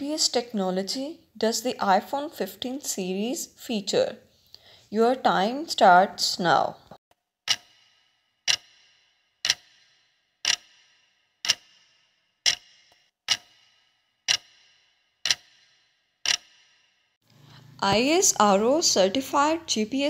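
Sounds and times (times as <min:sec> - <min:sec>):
clock ticking: 0:07.5 - 0:16.8.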